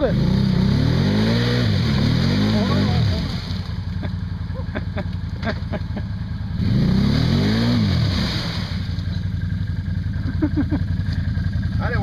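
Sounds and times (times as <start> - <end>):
quad bike engine revving: 0.0 - 12.0.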